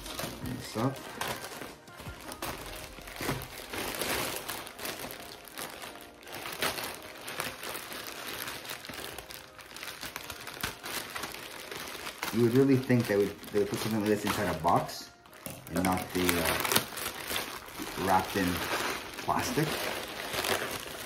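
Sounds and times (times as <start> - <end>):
plastic bag crinkling: 0.0 - 21.0
scissors cutting plastic: 15.3 - 21.0.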